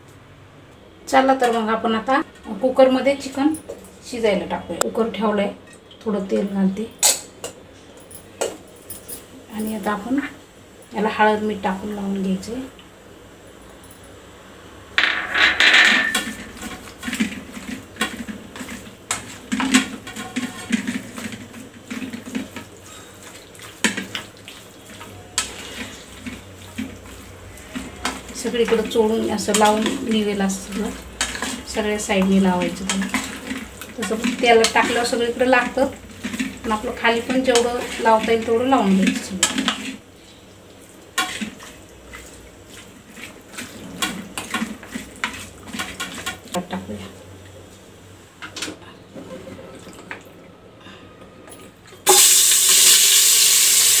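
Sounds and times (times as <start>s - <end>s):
metal utensil scraping plate: 15.0s - 17.4s
metal utensil scraping steel bowl: 15.0s - 21.4s, 27.6s - 40.0s.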